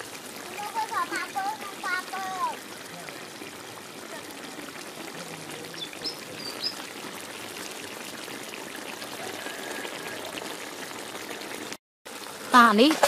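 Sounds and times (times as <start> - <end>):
sauce bubbling in a pan: 0.0 - 13.0.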